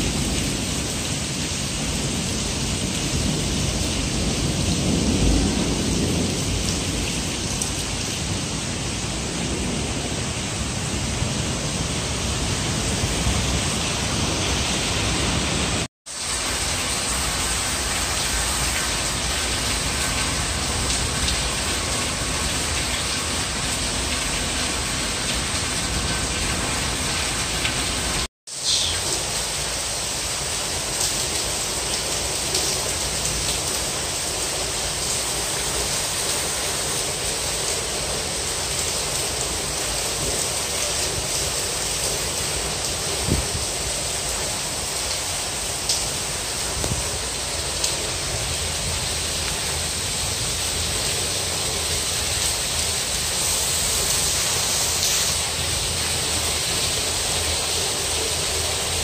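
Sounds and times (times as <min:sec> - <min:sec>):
heavy rain pouring: 0:00.0 - 0:59.0.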